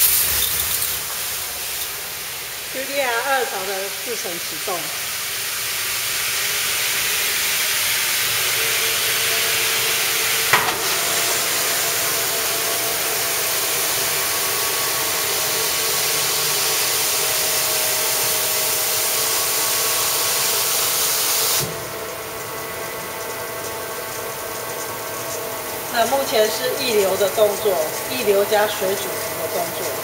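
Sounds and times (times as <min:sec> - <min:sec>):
rinse water spraying hiss: 0:00.0 - 0:21.8.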